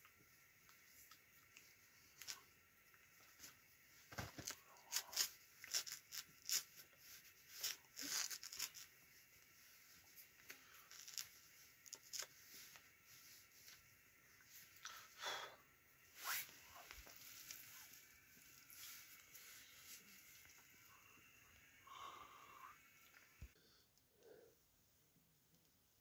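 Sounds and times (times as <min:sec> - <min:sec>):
jacket sleeves rustling: 0:16.0 - 0:20.9.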